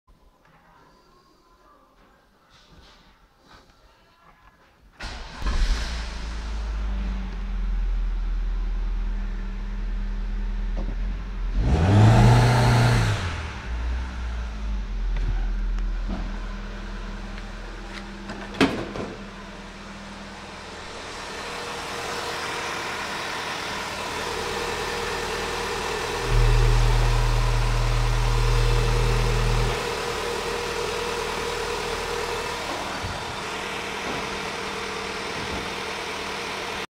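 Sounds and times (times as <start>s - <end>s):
petrol engine idling: 13.4s - 36.9s
steady low hum: 13.6s - 35.9s.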